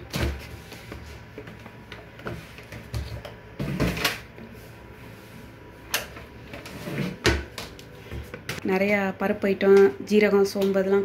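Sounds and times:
basket scraping and rustling: 6.4s - 7.4s.

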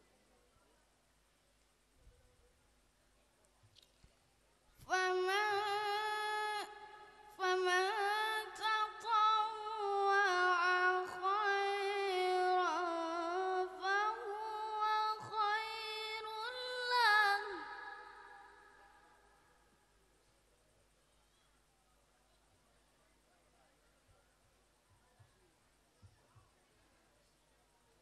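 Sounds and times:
boy chanting melodically over pa: 4.9s - 18.6s.

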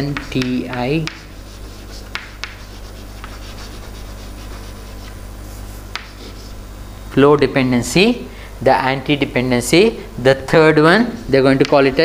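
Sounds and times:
chalk tap: 0.0s - 6.5s
chalk scratching on chalkboard: 0.0s - 6.6s.

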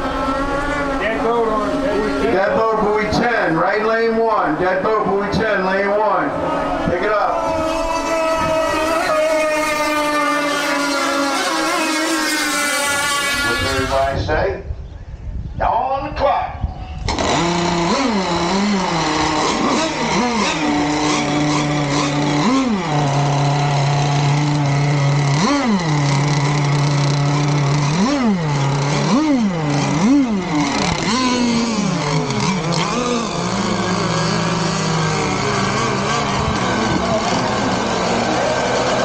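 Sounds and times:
small two-stroke engine revving: 0.0s - 14.2s, 17.0s - 39.0s.

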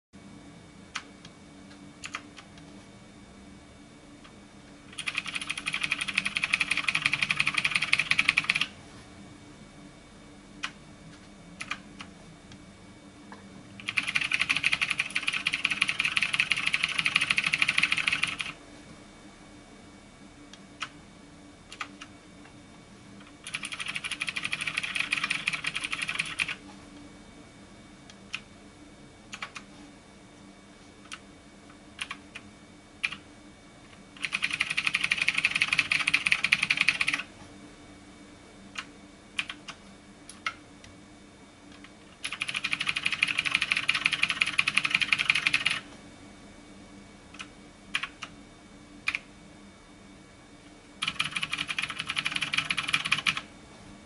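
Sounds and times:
fast typing: 4.9s - 8.7s, 11.6s - 11.8s, 13.8s - 18.6s, 21.7s - 22.0s, 23.4s - 26.6s, 29.4s - 29.6s, 32.0s - 32.2s, 33.0s - 33.2s, 34.2s - 37.3s, 38.8s - 39.7s, 42.2s - 45.8s, 48.0s - 48.3s, 51.0s - 53.5s.

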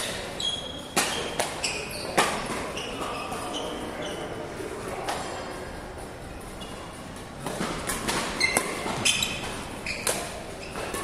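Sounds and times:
shoes squeaking on court floor: 0.0s - 4.4s, 6.5s - 7.0s, 7.6s - 11.0s
racket hitting shuttlecock: 0.9s - 2.6s, 7.4s - 11.0s.

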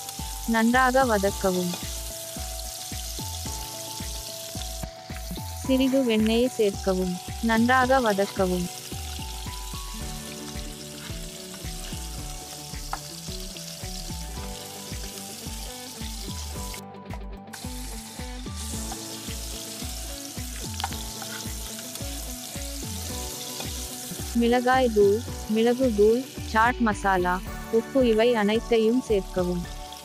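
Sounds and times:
corn sizzling in butter: 0.0s - 16.8s, 17.5s - 30.0s
soft background music: 0.0s - 30.0s
spatula stirring in pan: 10.3s - 12.2s, 20.4s - 22.1s.

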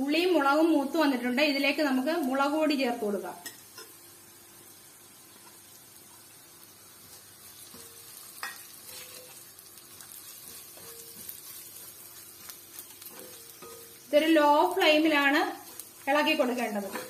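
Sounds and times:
food frying in oil: 0.0s - 17.0s
metal spoon scraping pan: 7.1s - 9.4s, 10.0s - 14.1s, 15.6s - 17.0s.

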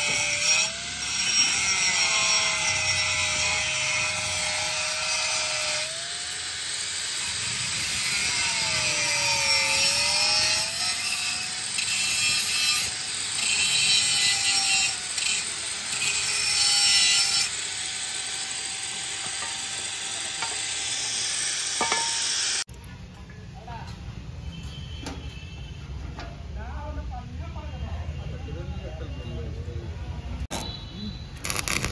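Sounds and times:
angle grinder motor whine: 0.0s - 22.7s.

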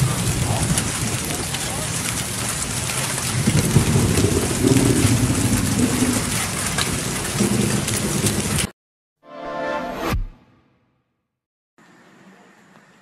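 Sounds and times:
hail and heavy rain on pavement: 0.0s - 8.7s.

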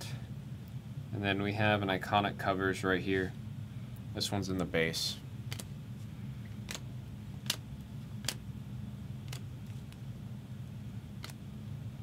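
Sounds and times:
steady low hum: 0.0s - 12.0s
trading cards flipping: 5.5s - 5.7s, 6.6s - 7.6s, 9.2s - 10.1s.

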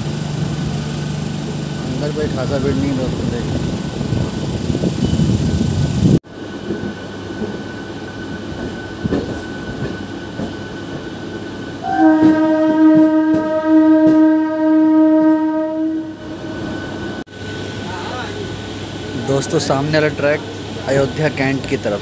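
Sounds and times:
train rumbling: 0.0s - 22.0s
train horn blast: 11.8s - 16.5s.

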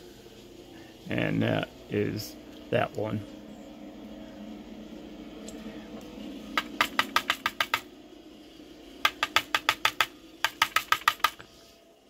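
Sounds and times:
rapid light clicking of pins: 6.5s - 7.9s, 9.0s - 11.6s.

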